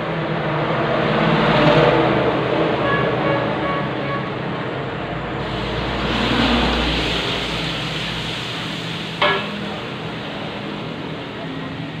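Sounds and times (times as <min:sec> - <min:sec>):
paste sizzling in hot oil: 0:05.4 - 0:10.0
sharp knock: 0:09.2 - 0:09.8.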